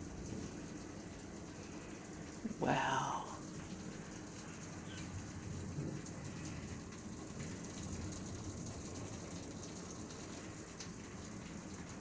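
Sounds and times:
steady rain falling: 0:00.0 - 0:12.0
low thunder rumble: 0:04.8 - 0:09.2.

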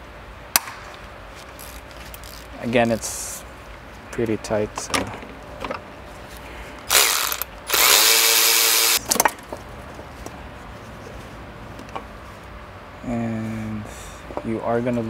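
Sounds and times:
electric ratchet whirring: 0:01.6 - 0:02.6, 0:06.9 - 0:09.0.

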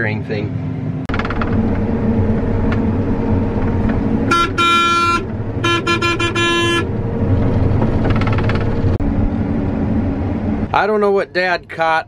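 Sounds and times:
combine engine droning: 0:00.0 - 0:12.0
vehicle horn honking: 0:04.3 - 0:06.9.

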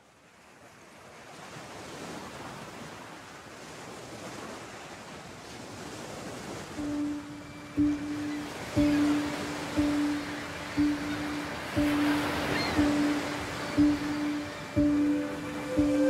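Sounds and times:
surf on rocky shore: 0:00.3 - 0:16.0
held music note: 0:06.8 - 0:16.0.

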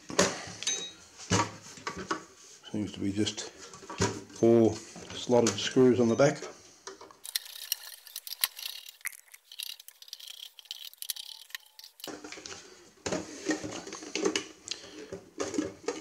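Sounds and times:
metal case clicks and scrapes: 0:07.2 - 0:12.4.

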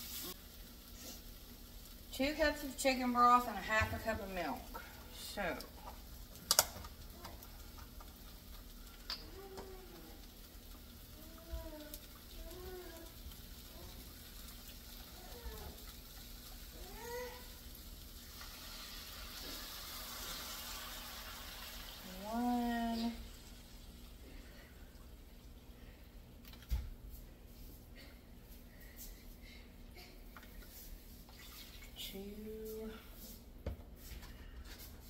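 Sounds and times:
sausage sizzling in a skillet: 0:00.0 - 0:26.0.

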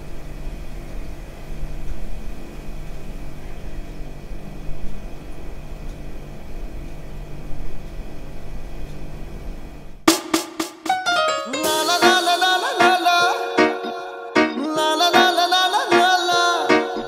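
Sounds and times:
low hum with faint hiss: 0:00.0 - 0:10.0
sharp plucked notes: 0:10.8 - 0:17.0.

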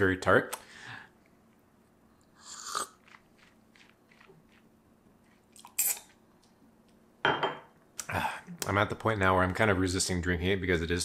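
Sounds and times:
person sipping with hiss of air: 0:02.2 - 0:04.3, 0:05.2 - 0:06.2
slurp from ceramic cup: 0:02.3 - 0:04.6.

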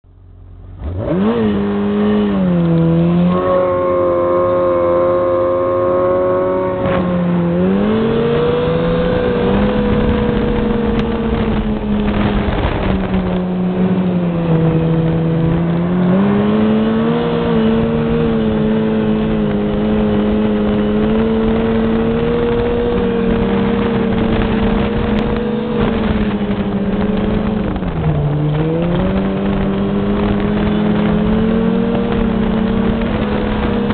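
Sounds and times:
steady rushing noise: 0:00.1 - 0:33.9
snowmobile engine revving: 0:00.8 - 0:33.9.

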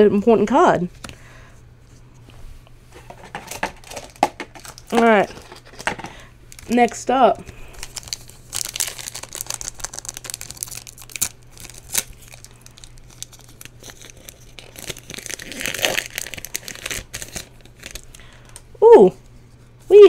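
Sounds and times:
foil wrapper crinkling: 0:03.0 - 0:18.6
wrapper tearing open: 0:03.2 - 0:07.0, 0:07.7 - 0:18.6.

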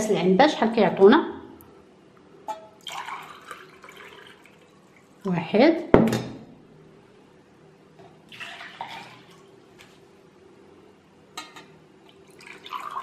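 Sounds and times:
water splashing and pouring: 0:02.8 - 0:05.1, 0:08.3 - 0:09.5, 0:12.1 - 0:13.0.

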